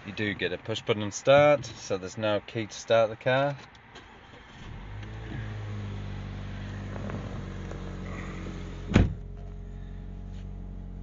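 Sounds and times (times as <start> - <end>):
car engine starting and idling: 3.3 - 11.0.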